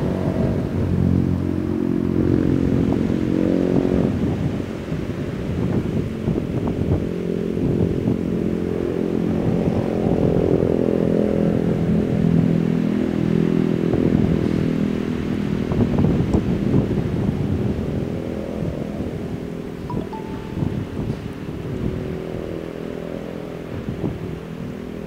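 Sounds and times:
engine running with rough hum: 0:00.0 - 0:19.7.

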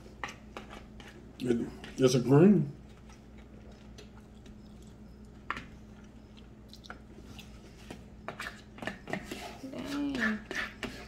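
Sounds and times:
chewing food: 0:02.8 - 0:08.7.

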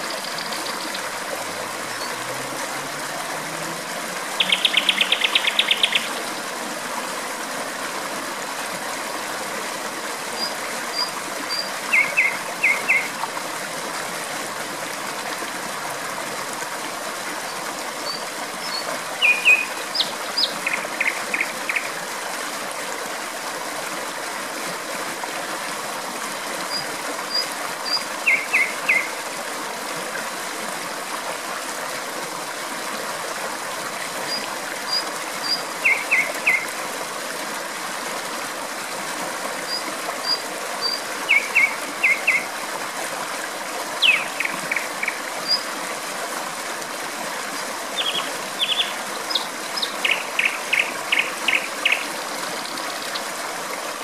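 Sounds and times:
flowing water rushing: 0:00.0 - 0:54.0
nightingale singing: 0:04.4 - 0:06.1, 0:10.4 - 0:13.1, 0:18.1 - 0:21.8, 0:27.3 - 0:29.1, 0:34.3 - 0:36.6, 0:44.0 - 0:45.6, 0:48.0 - 0:52.0.

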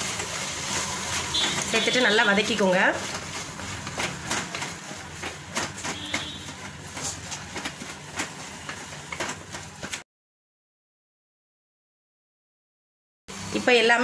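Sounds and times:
food sizzling: 0:00.0 - 0:02.8.

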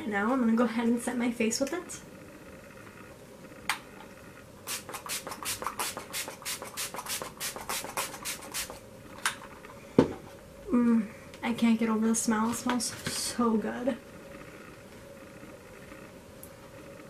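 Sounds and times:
spray bottle spritzing: 0:04.7 - 0:08.8.

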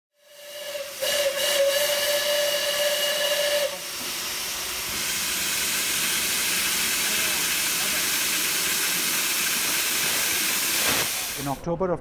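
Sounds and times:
steam locomotive whistle: 0:00.2 - 0:04.1
hiss of escaping steam: 0:00.2 - 0:11.6.

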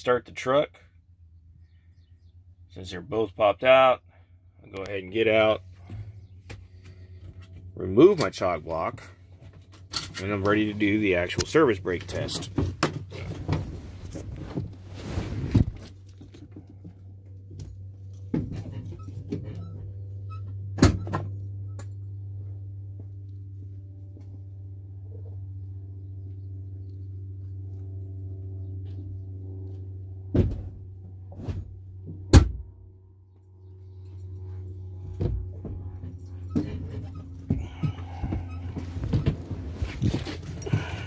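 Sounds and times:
sharp knocks and thuds: 0:30.3 - 0:32.7, 0:35.1 - 0:35.9
truck diesel engine idling: 0:37.2 - 0:41.0.

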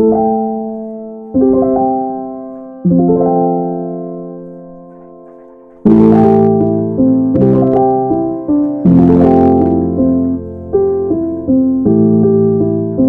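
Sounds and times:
piano chords ringing: 0:00.0 - 0:13.0.

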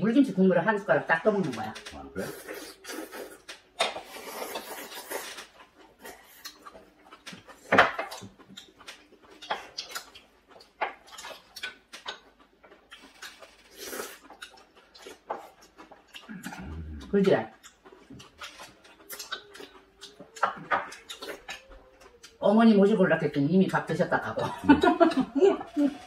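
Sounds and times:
chewing: 0:01.4 - 0:26.0
slurping broth: 0:02.2 - 0:05.5.

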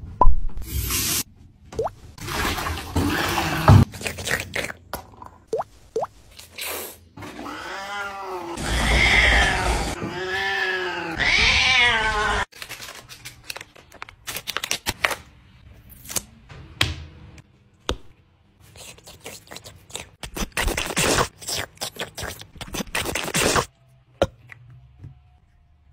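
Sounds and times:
cat meowing: 0:07.4 - 0:12.4.

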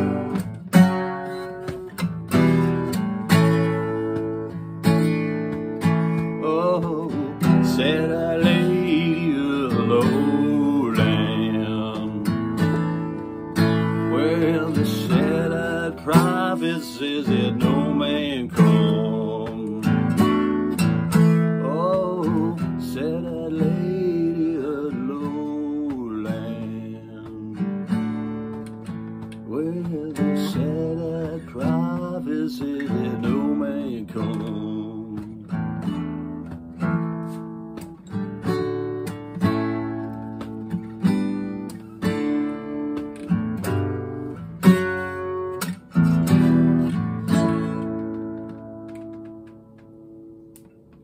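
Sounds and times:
acoustic guitar strumming: 0:00.0 - 0:51.0
wordless singing: 0:06.3 - 0:13.2, 0:13.8 - 0:20.4, 0:21.6 - 0:28.2, 0:29.4 - 0:35.6.

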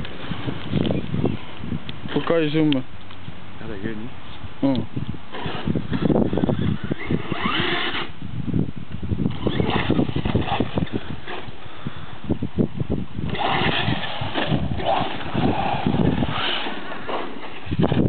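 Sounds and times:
low thumping and rumbling: 0:08.2 - 0:18.0
electric motor whining: 0:09.3 - 0:11.6, 0:13.3 - 0:18.0.

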